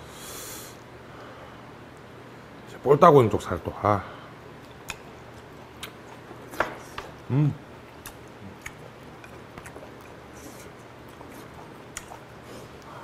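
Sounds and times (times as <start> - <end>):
man chewing: 4.6 - 13.0
man humming: 7.3 - 7.6.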